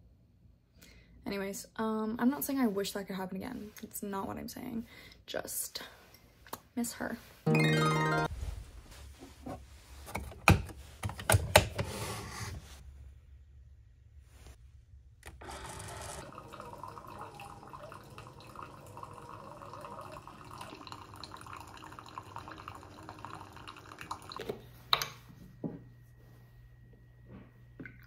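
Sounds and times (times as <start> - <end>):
coffee maker pump running: 15.2 - 24.4
coffee streaming into mug: 16.2 - 24.6.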